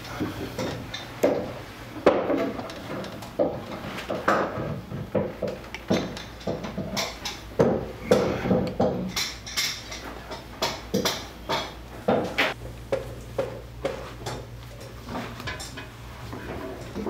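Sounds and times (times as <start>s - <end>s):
household things clattering: 0.0s - 12.6s.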